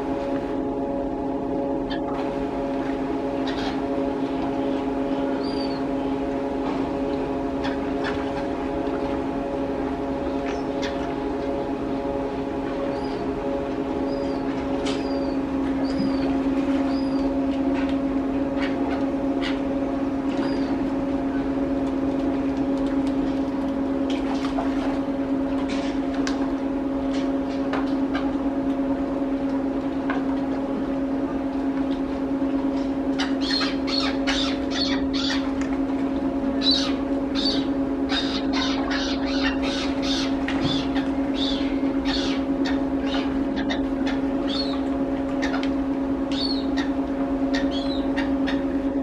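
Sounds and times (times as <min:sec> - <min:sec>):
low mechanical hum: 0:00.0 - 0:49.0.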